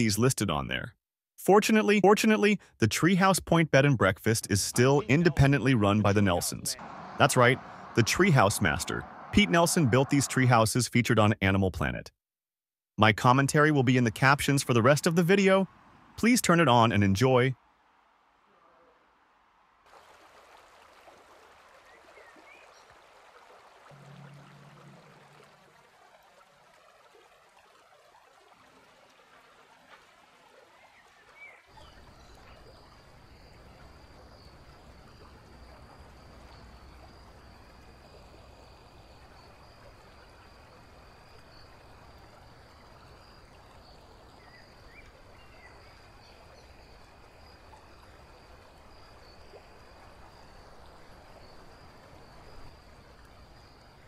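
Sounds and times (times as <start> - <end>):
thin high-pitched whine: 4.8 - 10.6
low rumble: 6.7 - 10.2
rushing hiss of water: 6.8 - 10.5.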